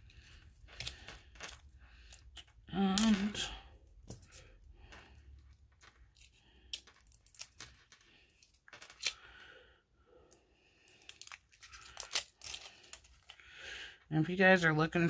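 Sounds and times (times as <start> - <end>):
tape peeling and tearing: 6.1 - 9.2, 11.0 - 13.3.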